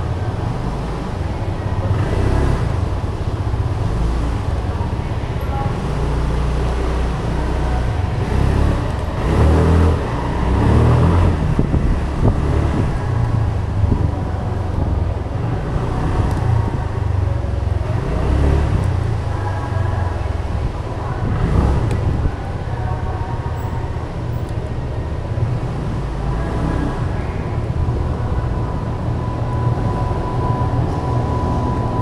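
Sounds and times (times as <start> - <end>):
car engines rumbling in garage: 0.0 - 32.0.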